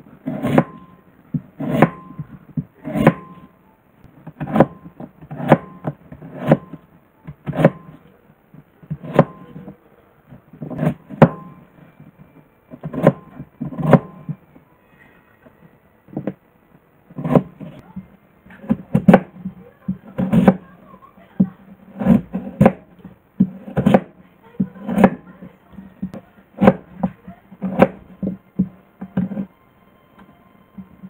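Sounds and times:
knife chopping on wooden board: 0:00.2 - 0:03.4, 0:04.2 - 0:08.0, 0:08.9 - 0:09.7, 0:10.6 - 0:11.6, 0:12.8 - 0:14.4, 0:17.1 - 0:17.8, 0:18.5 - 0:20.7, 0:21.4 - 0:25.3, 0:26.0 - 0:29.5.

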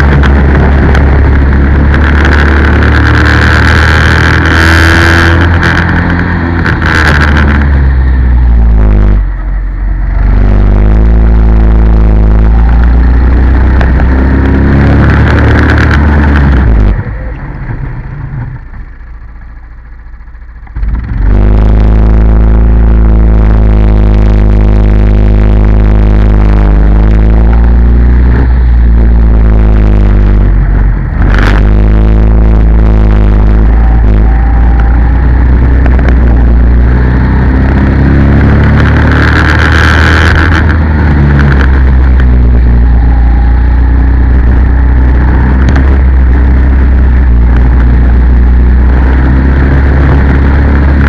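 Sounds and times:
kart engine revving: 0:00.0 - 0:19.5, 0:20.6 - 0:51.0.

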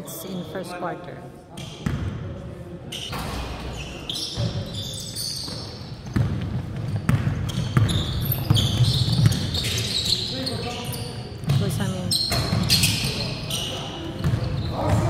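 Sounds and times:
sneaker squeaks: 0:02.9 - 0:15.0
basketball dribbling on court: 0:05.5 - 0:09.8.

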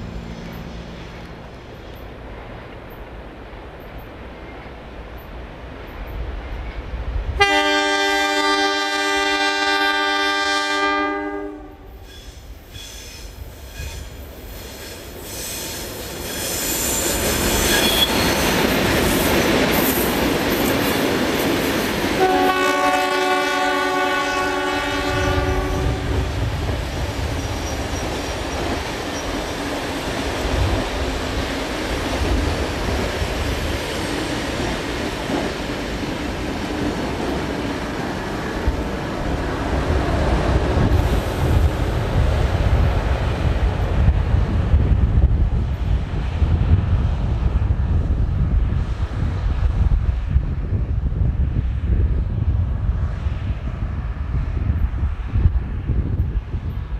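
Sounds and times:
train engines and wheels rumbling: 0:00.0 - 0:56.9
locomotive horn blasts: 0:07.4 - 0:12.0, 0:22.2 - 0:26.3.

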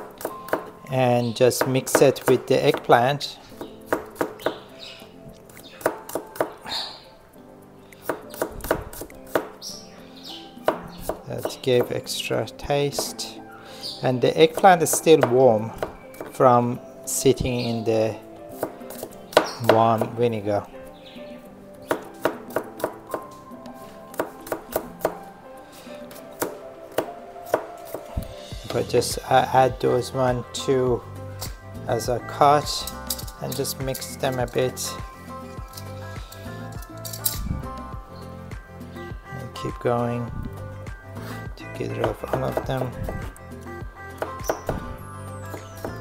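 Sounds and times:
knife chopping on cutting board: 0:08.0 - 0:09.5, 0:42.0 - 0:43.2.

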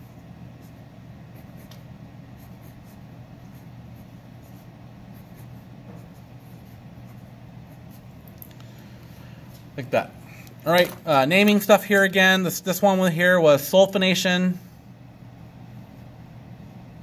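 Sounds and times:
pencil scratching on paper: 0:00.0 - 0:08.2.

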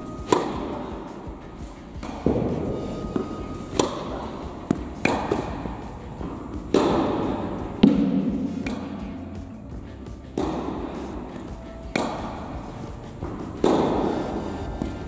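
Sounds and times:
tennis balls bouncing on court: 0:00.0 - 0:15.0
tennis balls struck with rackets: 0:00.0 - 0:15.0.

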